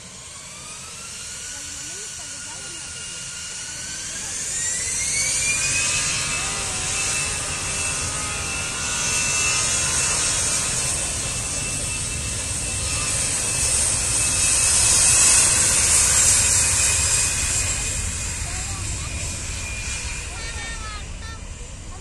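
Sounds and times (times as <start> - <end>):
jet engines at takeoff power: 0.0 - 22.0.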